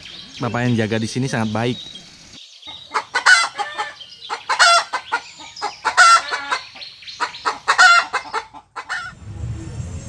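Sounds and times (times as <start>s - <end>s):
chicken calling: 2.7s - 9.1s.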